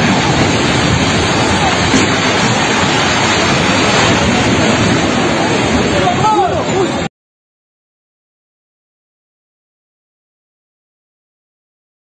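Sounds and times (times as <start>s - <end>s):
loud rushing roar: 0.0s - 7.1s
faint shouting voices: 5.8s - 7.1s.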